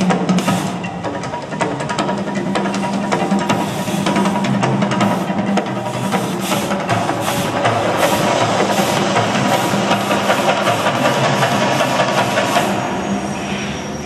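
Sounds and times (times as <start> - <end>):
drum-heavy music over loudspeakers: 0.0 - 11.8
deep eruption rumble: 6.6 - 13.9.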